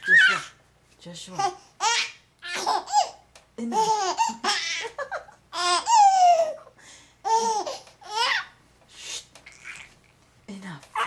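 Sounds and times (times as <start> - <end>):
baby laughing with squeals: 0.0 - 0.6, 3.9 - 6.6, 9.5 - 10.0.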